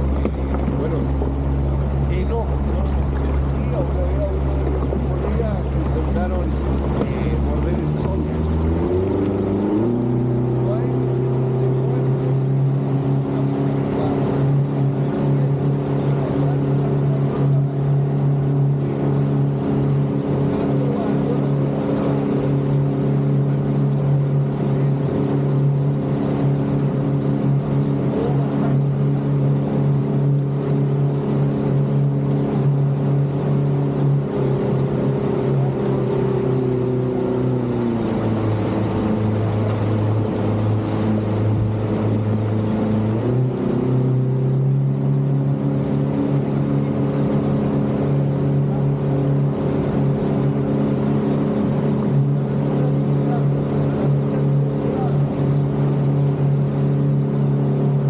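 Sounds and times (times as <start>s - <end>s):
motorboat engine: 0.0s - 58.0s
water rushing past hull: 0.0s - 58.0s.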